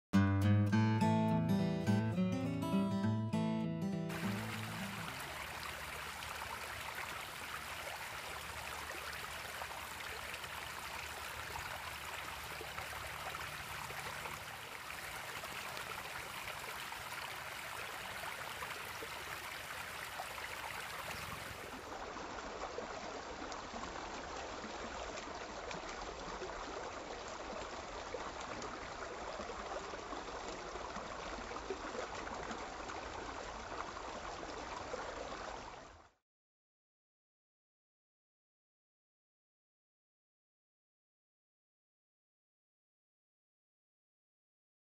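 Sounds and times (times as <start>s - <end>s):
water running over rocks: 4.1s - 36.0s.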